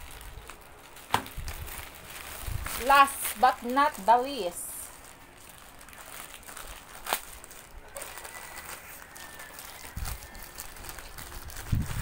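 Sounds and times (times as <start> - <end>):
sharp plastic crack: 0.0 - 4.2, 5.1 - 8.7
plastic bag crinkling: 0.0 - 12.0.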